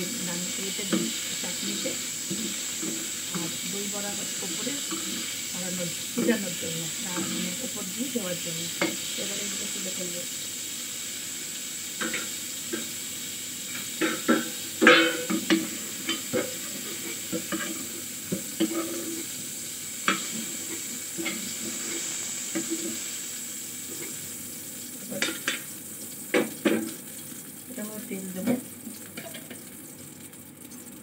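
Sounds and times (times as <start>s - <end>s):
vegetables sizzling in hot oil: 0.0s - 31.0s
metal spatula scraping pan: 14.0s - 18.0s, 18.6s - 19.3s.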